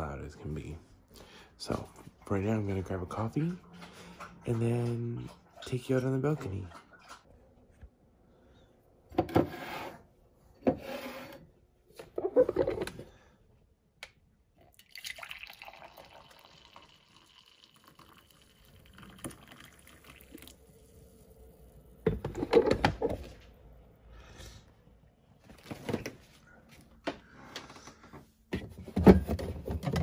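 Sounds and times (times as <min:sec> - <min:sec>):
coffee pouring into mug: 0:14.6 - 0:22.7.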